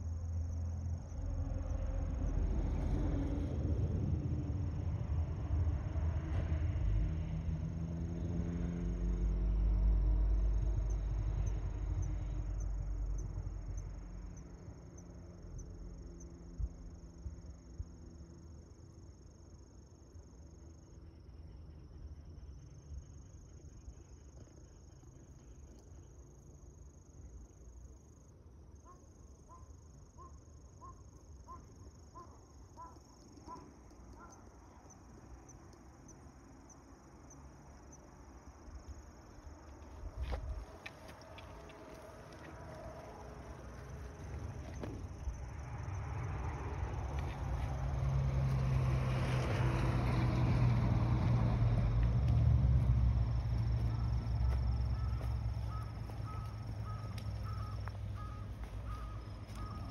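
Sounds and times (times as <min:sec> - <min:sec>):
vehicle engine rumble: 0:00.0 - 0:28.7, 0:29.3 - 0:59.9
high insect trill: 0:00.0 - 0:59.9
short evenly spaced calls: 0:28.8 - 0:38.2, 0:53.8 - 0:59.9.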